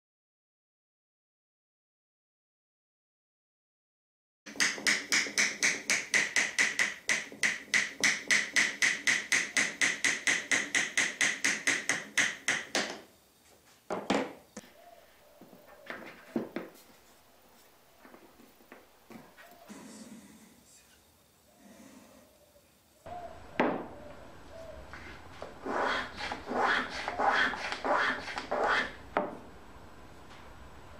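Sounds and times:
hammer tapping wood: 4.5 - 13.0.

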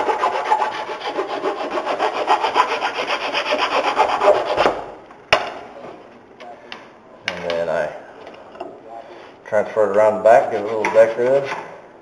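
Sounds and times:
hand file rasping on wood: 0.0 - 4.7, 10.4 - 11.6.

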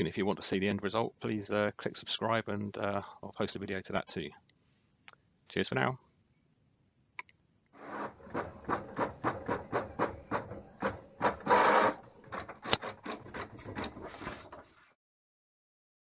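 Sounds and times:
printer whirr: 7.8 - 14.8
inkjet printer print head shuttling: 7.8 - 14.9.

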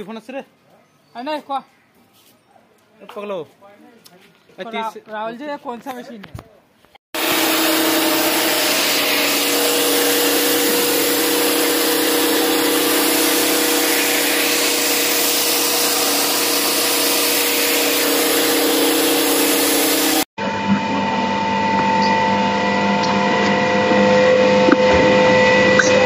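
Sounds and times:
rice mill whirring: 7.2 - 26.0.

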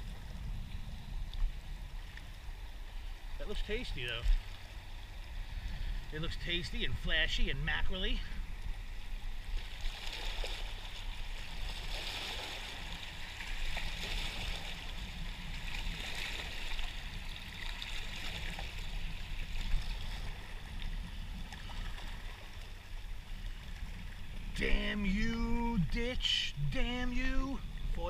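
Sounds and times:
waves lapping against rocks: 0.0 - 28.0.

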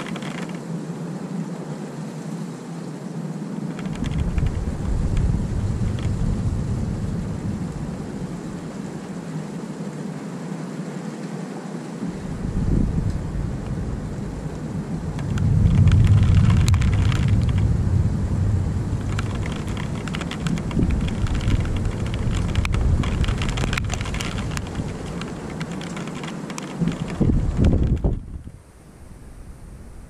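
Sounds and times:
raindrops ticking: 0.0 - 0.6, 3.7 - 9.2, 13.0 - 28.2
rolling thunder: 3.8 - 9.2, 12.1 - 28.5.

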